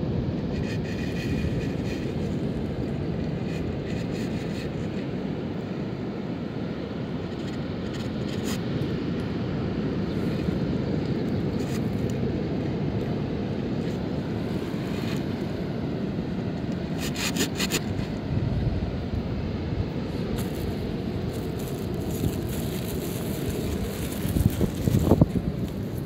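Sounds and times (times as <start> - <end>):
wind buffeting microphone: 18.0 - 26.0.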